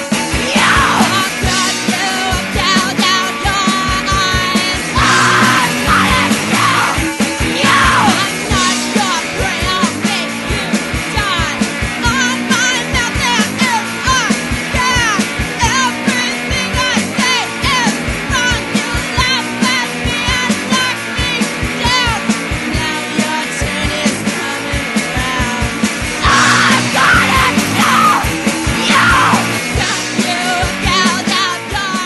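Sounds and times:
punk rock song: 0.0s - 32.0s
person shouting: 0.4s - 1.3s, 4.9s - 8.3s, 26.2s - 29.6s.

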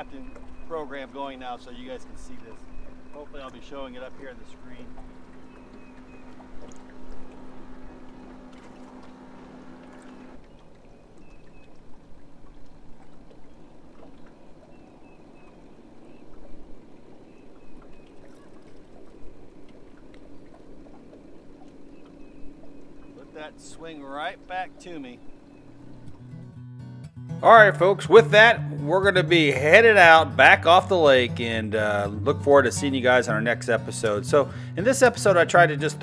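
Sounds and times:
electric trolling motor humming: 0.0s - 26.6s
water around boat: 0.0s - 26.6s, 27.4s - 36.0s
wind: 0.0s - 36.0s.

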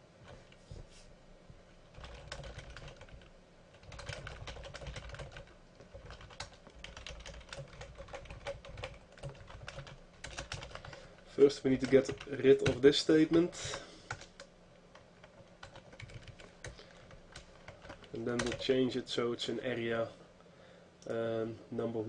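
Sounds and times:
typing on keyboard: 1.9s - 11.1s, 11.7s - 12.8s, 14.1s - 18.6s.

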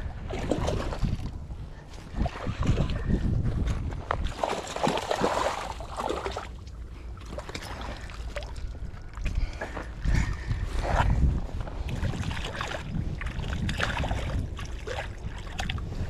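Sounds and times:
fish thrashing and splashing water: 0.1s - 1.4s, 4.0s - 9.5s, 11.8s - 16.0s.

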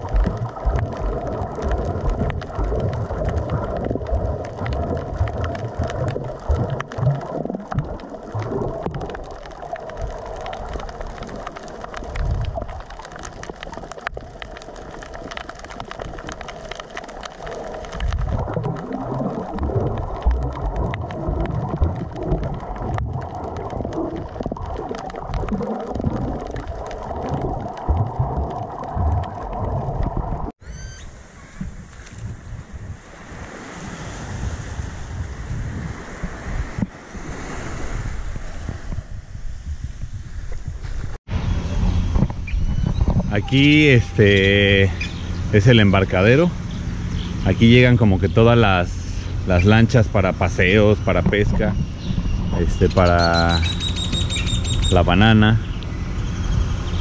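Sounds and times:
faint underwater clicks: 0.0s - 30.5s, 42.1s - 56.3s
waves washing onto beach: 0.0s - 41.2s, 43.3s - 56.1s
muffled underwater rumbling: 0.0s - 57.0s
wind on microphone: 18.0s - 57.0s.

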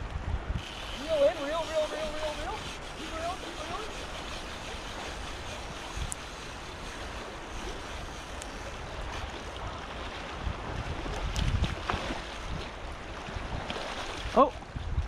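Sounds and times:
shallow river current rushing: 0.0s - 15.0s
wind buffeting microphone: 0.0s - 15.0s
faint ticks: 7.8s - 9.3s.

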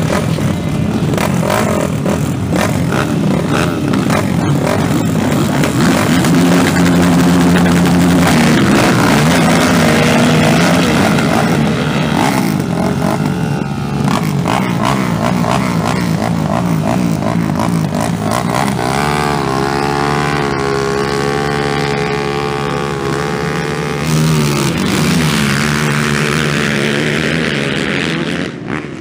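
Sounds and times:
quad engines revving: 0.0s - 29.0s.

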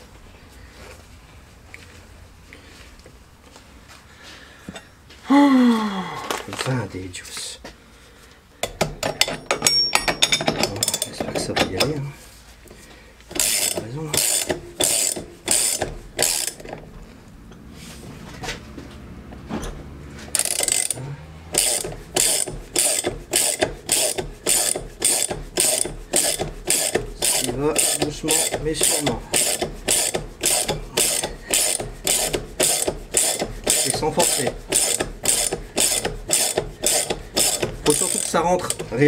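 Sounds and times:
ratchet wrench clicking: 13.3s - 16.8s, 20.3s - 39.0s.

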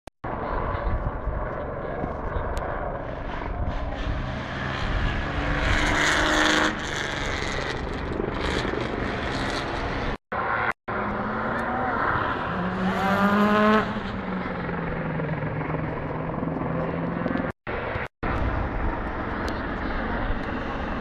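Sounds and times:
passing motor vehicle engine: 2.9s - 18.7s.

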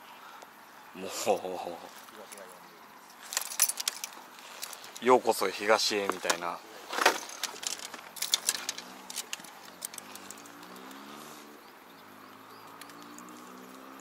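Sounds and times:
fishing tackle clicks and knocks: 3.2s - 5.1s, 6.0s - 11.0s.

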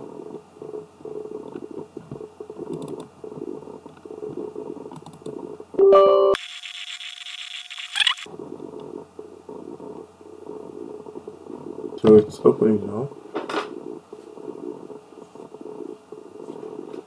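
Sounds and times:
computer mouse clicks: 1.4s - 3.1s, 4.9s - 5.4s
multi-tone chime: 5.8s - 6.4s.

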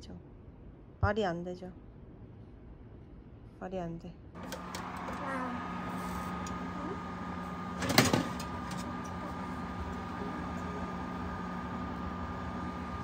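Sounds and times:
oven humming: 4.4s - 13.0s.

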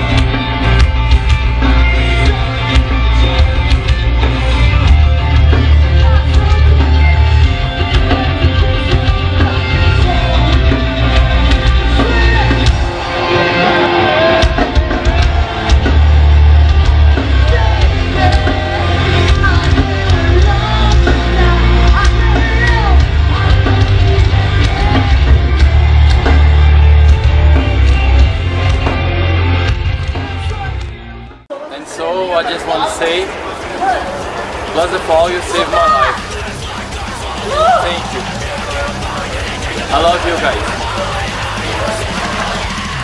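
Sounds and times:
pounding drums: 0.0s - 31.0s, 34.1s - 43.0s
distorted guitars: 0.0s - 31.4s, 33.2s - 43.0s
bass: 0.0s - 31.5s, 34.2s - 43.0s
person singing: 17.4s - 29.2s, 35.8s - 43.0s.

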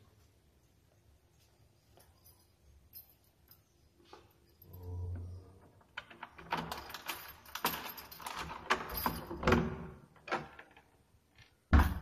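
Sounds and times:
keys jangling at lock: 1.9s - 10.8s
metal door handle rattling: 5.8s - 11.0s.

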